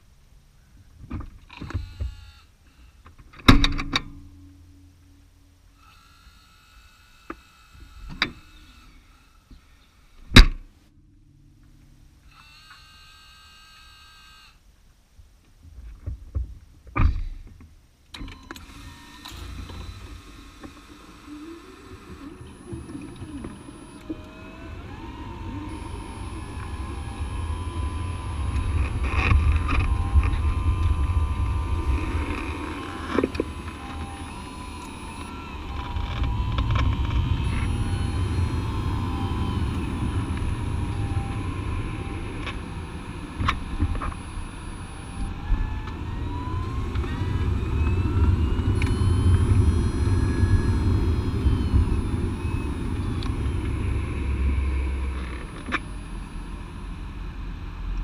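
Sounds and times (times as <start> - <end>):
faint whine: 18.1 - 58.0
electric car low rumble: 18.3 - 58.0.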